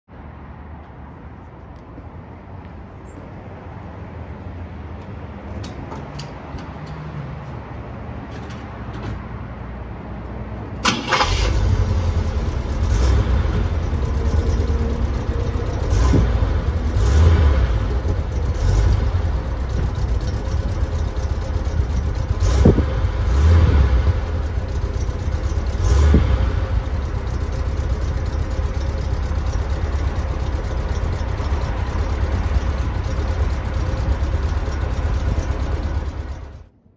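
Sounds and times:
car engine starting and revving: 10.8 - 36.6.

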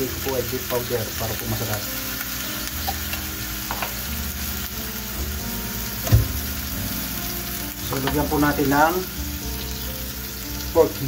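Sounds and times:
kitchen hiss: 0.0 - 11.0
metal can set on countertop: 3.7 - 4.0.

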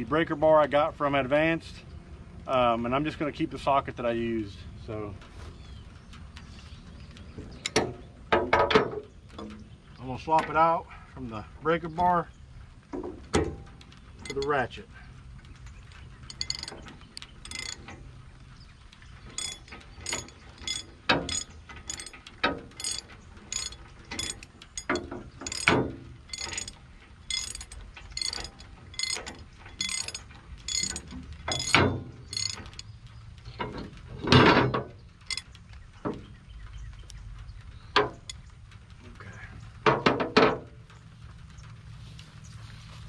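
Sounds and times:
ratchet wrench clicking: 16.3 - 16.8, 17.4 - 17.8, 19.3 - 32.9, 35.3 - 35.5.

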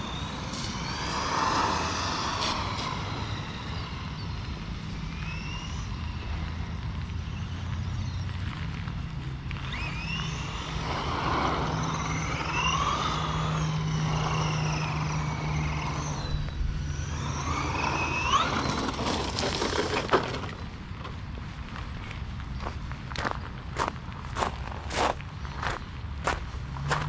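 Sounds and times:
electric motor whining: 0.0 - 8.3, 8.9 - 21.2.

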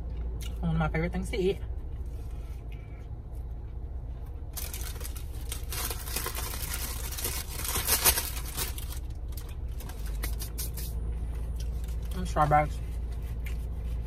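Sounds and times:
steady low hum: 0.0 - 14.0
paper wrapper crinkling: 4.6 - 10.9.

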